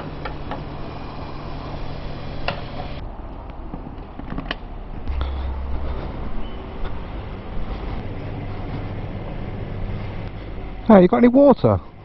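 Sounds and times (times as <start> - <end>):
low rumble: 4.8 - 10.9.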